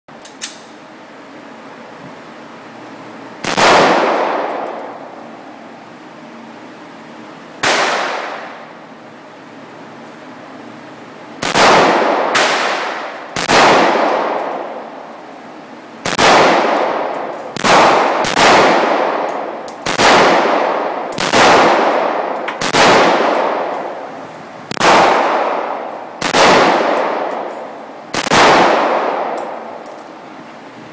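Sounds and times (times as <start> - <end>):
rifle shots echoing indoors: 3.4 - 5.4, 7.6 - 8.8, 11.4 - 15.3, 16.0 - 30.0.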